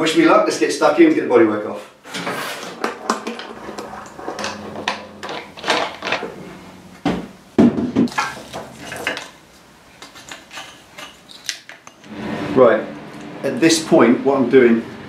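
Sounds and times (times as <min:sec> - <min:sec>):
tools knocking and clattering: 0:02.2 - 0:09.4, 0:10.0 - 0:12.1.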